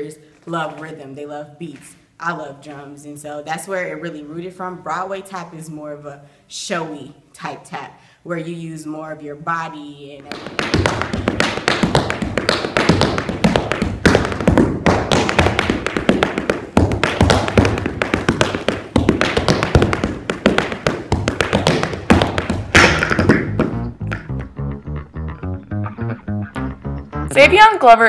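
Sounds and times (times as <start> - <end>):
tap shoes striking hard floor: 10.2 - 24.4.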